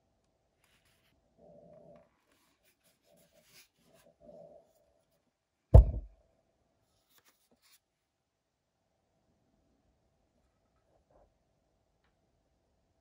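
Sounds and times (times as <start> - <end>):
loud dull thump: 5.8 - 6.1.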